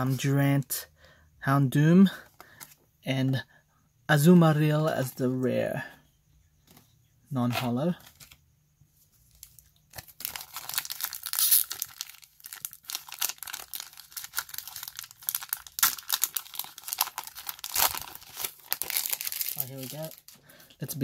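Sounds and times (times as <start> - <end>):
foil wrapper crinkling and tearing: 9.3 - 20.4.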